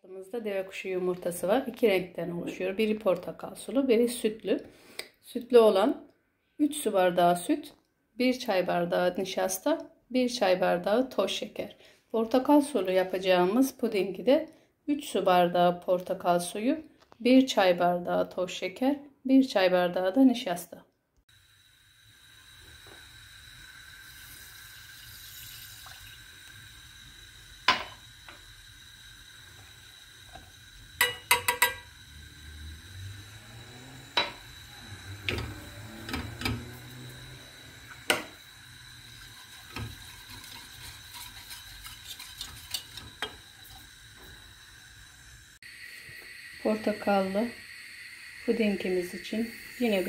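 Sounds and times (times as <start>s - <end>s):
wire whisk stirring in a pot: 30.3s - 31.9s, 38.9s - 44.5s
metal and glass clinking on pot: 31.0s - 31.9s, 39.4s - 43.8s.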